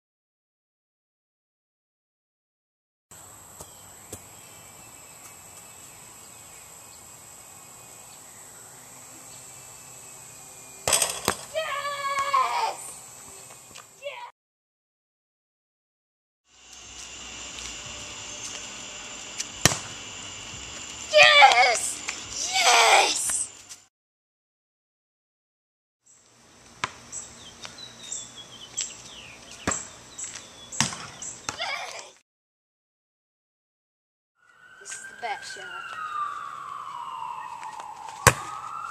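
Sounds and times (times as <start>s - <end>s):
insects droning: 3.2s - 14.3s, 16.5s - 23.8s, 26.1s - 31.6s, 34.4s - 38.9s
birds chirping: 3.5s - 10.9s, 27.1s - 31.6s, 34.4s - 38.9s
basketball bouncing on asphalt: 3.6s - 4.3s, 10.8s - 11.5s, 19.6s - 20.0s, 26.8s - 27.1s, 29.4s - 31.6s, 38.1s - 38.9s.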